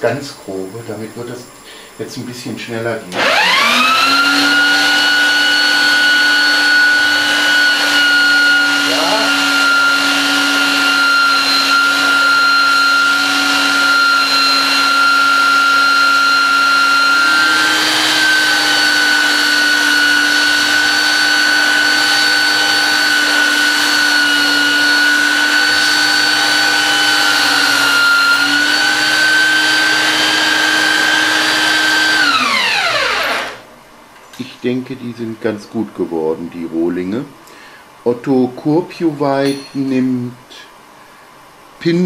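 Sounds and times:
belt sander whining: 3.1 - 33.7.

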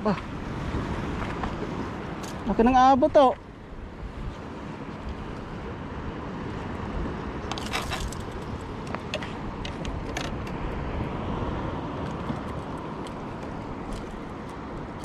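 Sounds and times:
wind rumble on microphone: 0.0 - 15.0
rustling clatter: 7.5 - 8.5.

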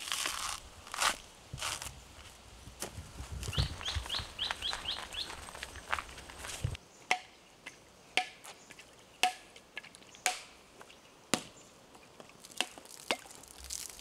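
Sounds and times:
machete knocking on coconut: 8.2 - 8.4, 9.2 - 9.5, 10.3 - 10.5.

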